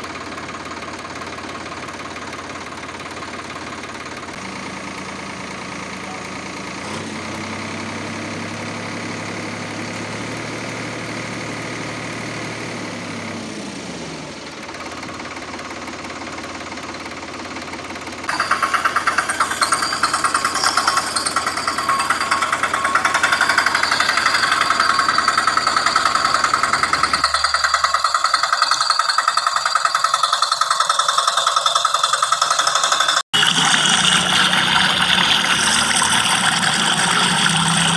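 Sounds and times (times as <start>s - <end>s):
toy vehicle electric motor humming: 14.4s - 37.9s
fast rattling buzz: 14.6s - 37.9s.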